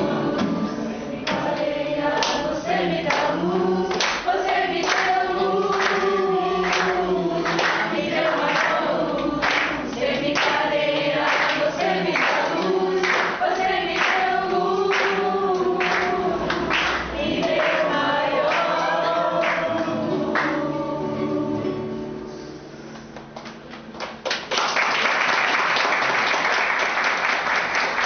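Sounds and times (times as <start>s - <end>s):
choir singing: 0.0s - 22.1s
hand clapping: 1.3s - 17.9s, 22.9s - 28.0s.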